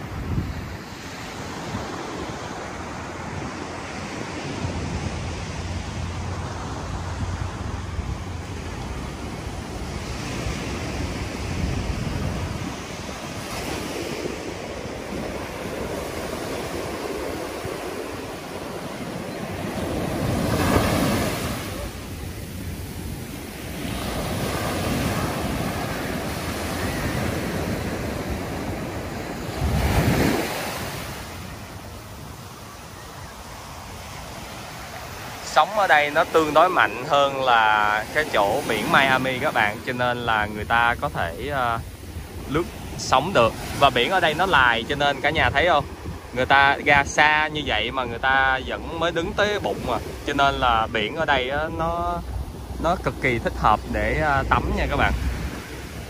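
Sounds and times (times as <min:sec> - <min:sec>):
ocean surf breaking on beach: 0:00.0 - 0:56.0
wind buffeting microphone: 0:00.0 - 0:56.0.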